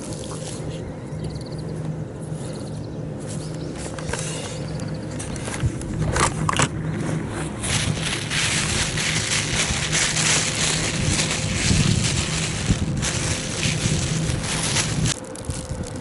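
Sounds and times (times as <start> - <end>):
steady low hum: 0.0 - 16.0
plastic bag rustling: 3.8 - 16.0.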